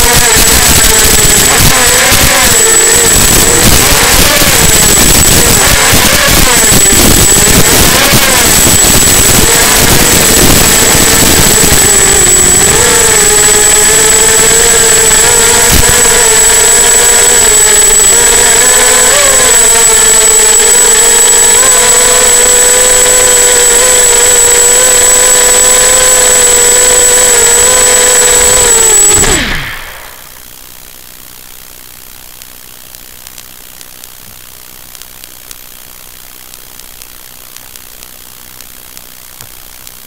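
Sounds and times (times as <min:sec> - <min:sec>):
quadcopter motors buzzing whine: 0:00.0 - 0:30.6
thin high-pitched tone: 0:00.2 - 0:30.4.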